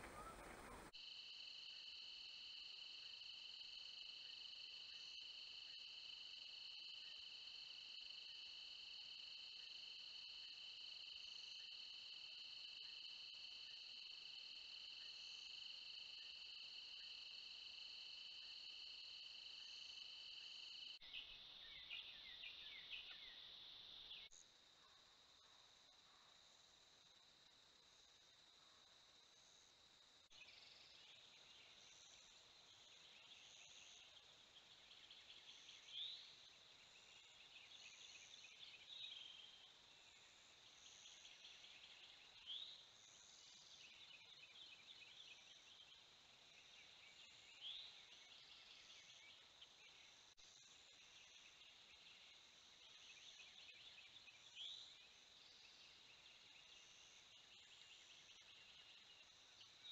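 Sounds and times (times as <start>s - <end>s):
short rising bird call: 0.0s - 0.9s.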